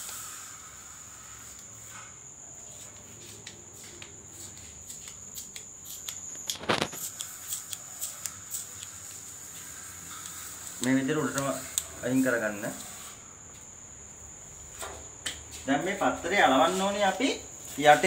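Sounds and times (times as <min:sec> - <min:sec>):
masking tape peeling: 0:04.9 - 0:13.2
tape ripping: 0:05.4 - 0:09.0.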